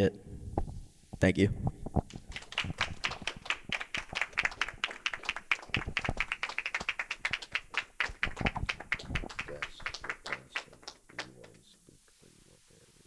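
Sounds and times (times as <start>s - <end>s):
small audience applauding: 2.1s - 11.8s.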